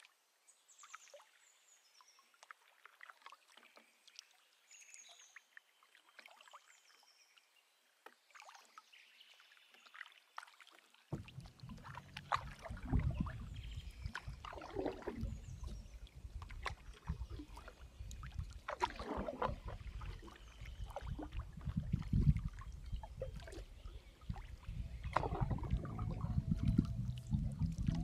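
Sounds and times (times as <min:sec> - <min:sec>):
paddle strokes swishing through water: 0:10.4 - 0:28.0
low rumble: 0:11.2 - 0:16.5, 0:24.7 - 0:28.0.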